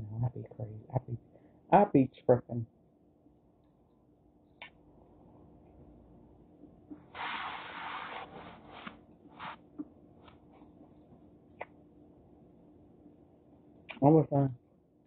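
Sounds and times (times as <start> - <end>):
crab shell rubbing hiss: 7.0 - 9.6.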